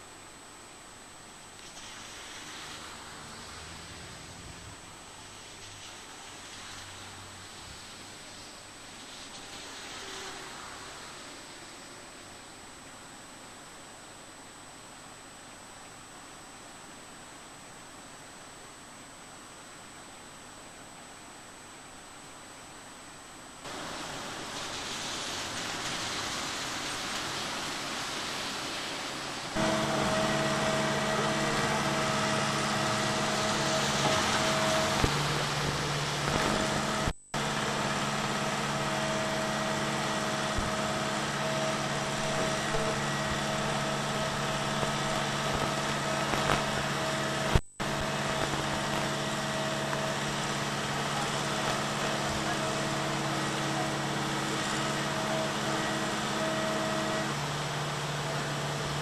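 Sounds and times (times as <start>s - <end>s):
river rushing: 1.4s - 12.8s, 23.7s - 59.0s
diesel engine idling: 29.6s - 59.0s.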